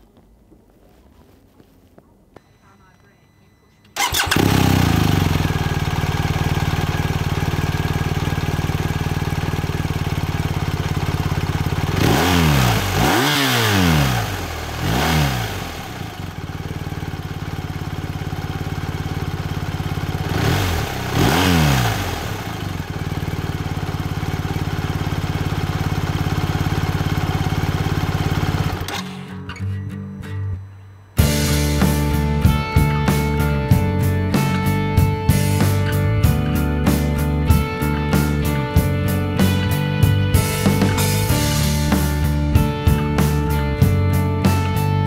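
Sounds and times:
motorcycle throttle blips: 2.0s - 32.7s
motorcycle engine idling: 4.0s - 28.9s, 31.2s - 45.0s.

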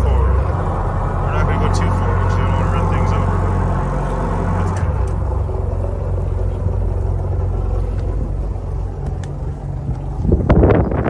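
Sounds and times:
boat diesel engines droning: 0.0s - 11.0s.

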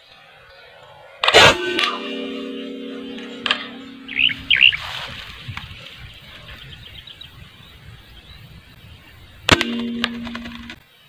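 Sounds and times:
short steady tone: 1.4s - 4.8s, 9.5s - 10.8s
small birds chirping: 3.2s - 10.3s.

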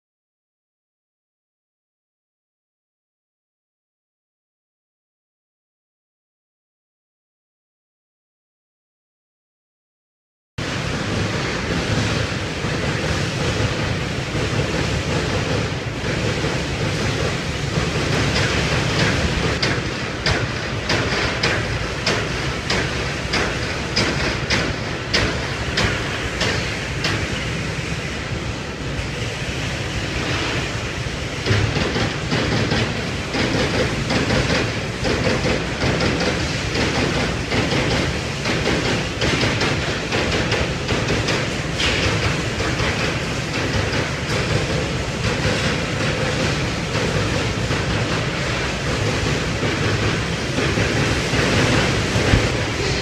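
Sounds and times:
low machine hum: 41.9s - 53.0s.

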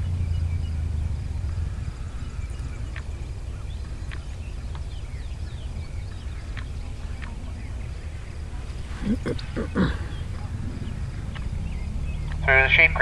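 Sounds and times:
wind rumble on microphone: 0.0s - 12.6s.

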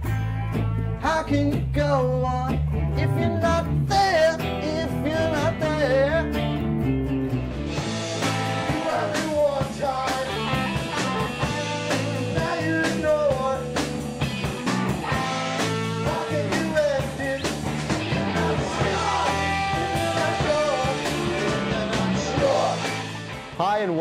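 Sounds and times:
drums: 0.0s - 24.0s
electric guitar: 0.0s - 24.0s
person singing: 1.0s - 6.3s, 8.4s - 13.9s, 15.1s - 23.1s.

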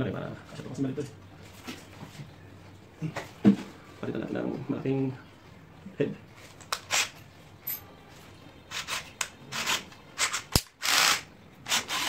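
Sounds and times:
drill bit and chuck rattling: 8.7s - 12.0s.

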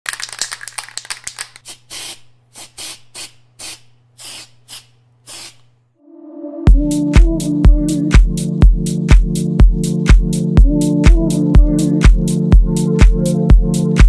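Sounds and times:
spray paint can hissing: 1.4s - 5.7s.

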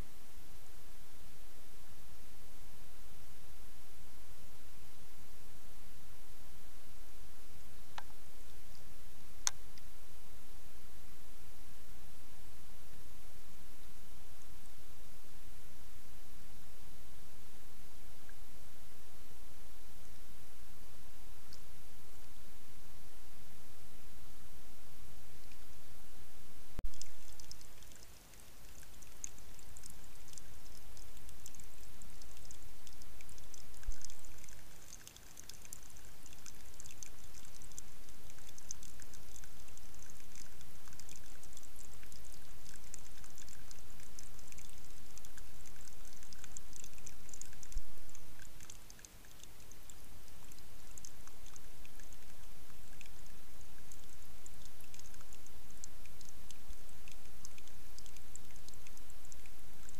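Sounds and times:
water trickling: 26.8s - 59.9s.

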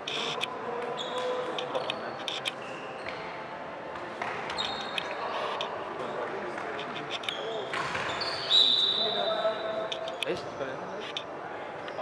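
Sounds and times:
shoes squeaking on floor: 0.0s - 3.3s, 4.3s - 5.7s, 6.8s - 10.2s
murmur of voices: 0.0s - 12.0s.

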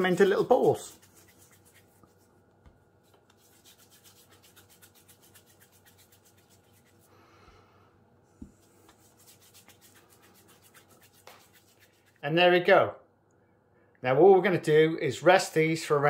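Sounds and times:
hands rolling pastry dough: 0.0s - 7.1s, 8.4s - 12.2s.

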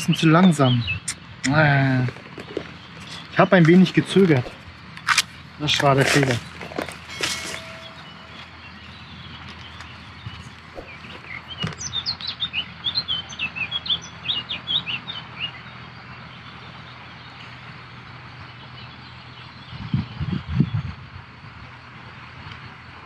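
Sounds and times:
songbird chirping: 0.0s - 20.8s.

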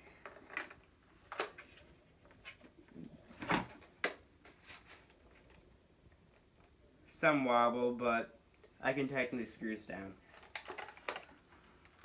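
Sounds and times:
plastic clicks and knocks: 10.4s - 11.3s.

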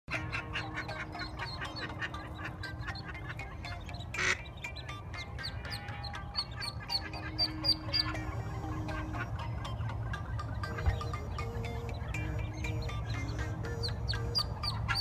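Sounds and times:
background music: 0.1s - 15.0s
duck quacking: 0.1s - 15.0s
ducklings peeping: 0.1s - 15.0s.

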